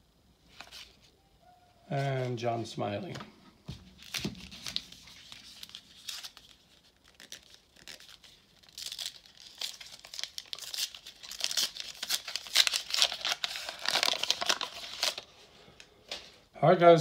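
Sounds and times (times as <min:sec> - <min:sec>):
foil pack crinkling and tearing: 0:03.9 - 0:15.3.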